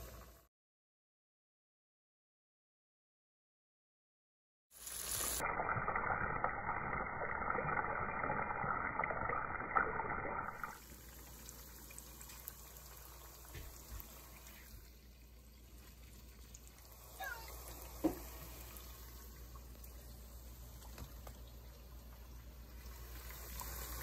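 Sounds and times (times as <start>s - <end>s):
food frying in hot oil: 4.7s - 24.0s.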